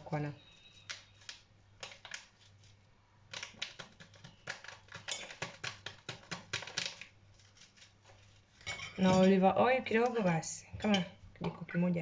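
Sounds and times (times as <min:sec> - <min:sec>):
dry clicks of tapping sachet: 0:03.3 - 0:07.1
paper sachet crinkling: 0:06.6 - 0:08.6.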